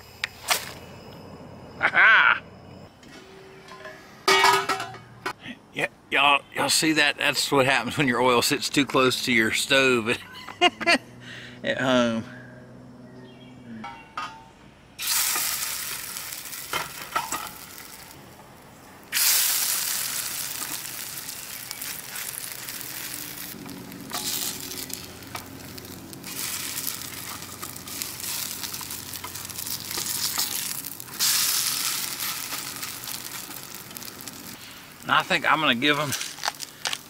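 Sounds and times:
potato cakes sizzling in oil: 15.0s - 37.0s.

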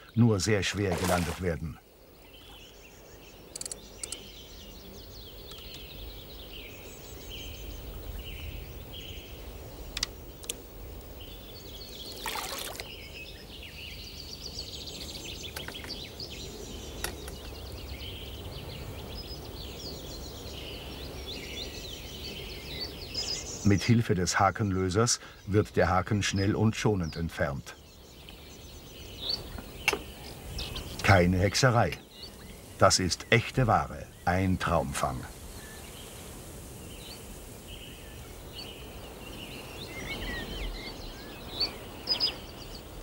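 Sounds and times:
birds chirping: 0.0s - 43.0s
water splash: 0.7s - 1.5s, 12.1s - 12.9s.

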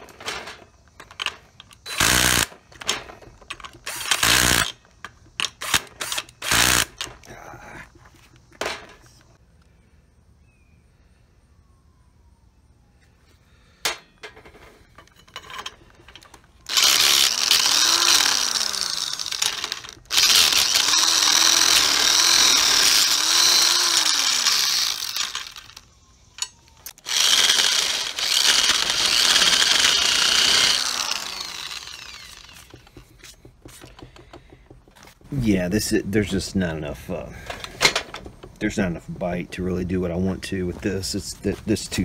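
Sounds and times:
electric drill drilling into steel: 1.8s - 2.9s, 3.7s - 7.1s, 16.6s - 33.0s.

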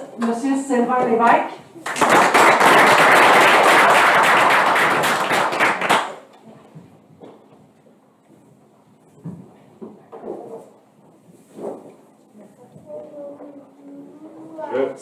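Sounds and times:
audience applauding: 1.8s - 6.2s.

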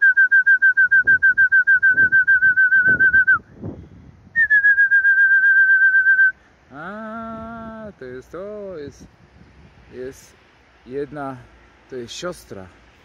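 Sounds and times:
high trilling whistle: 0.0s - 3.5s, 4.4s - 6.4s.

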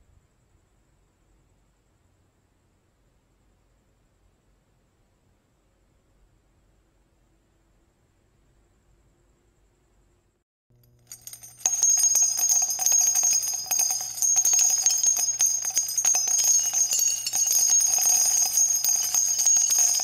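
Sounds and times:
jingle bells shaken rapidly: 11.1s - 20.0s.

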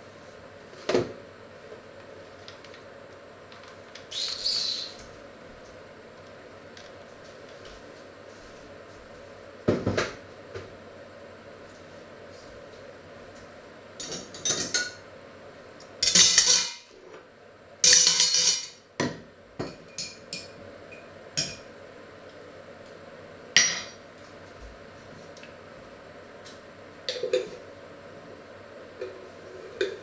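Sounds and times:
cutlery clattering into a metal pot: 16.0s - 16.8s, 17.8s - 18.8s.

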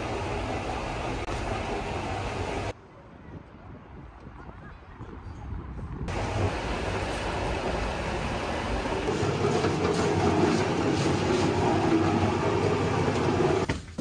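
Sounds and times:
machine rumbling and rattling: 6.1s - 13.7s.

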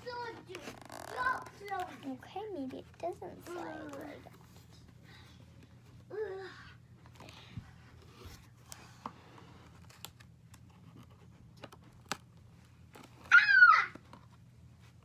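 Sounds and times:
child's voice: 0.0s - 4.4s.

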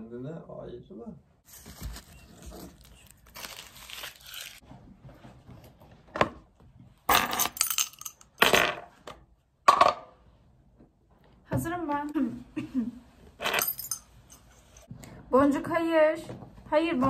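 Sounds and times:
rustling and handling noises: 1.4s - 7.0s.

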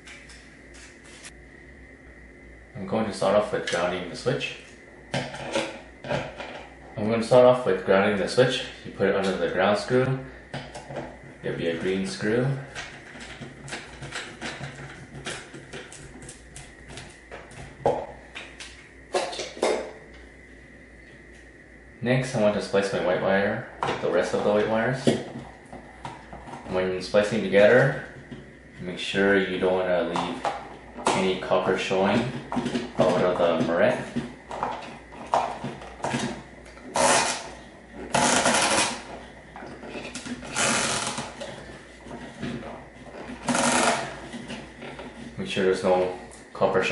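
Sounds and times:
copper wires scraping: 30.1s - 46.0s.

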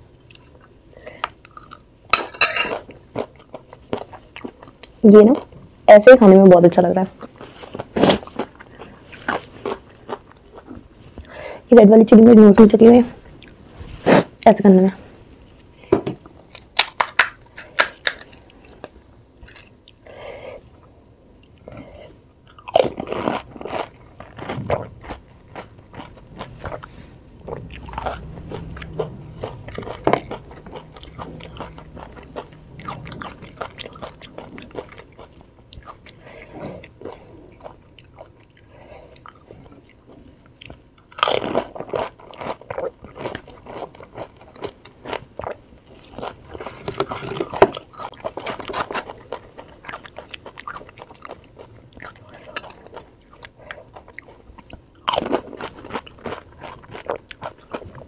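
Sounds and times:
crunching crisp shells: 16.5s - 19.8s
wet chewing: 22.5s - 58.0s.

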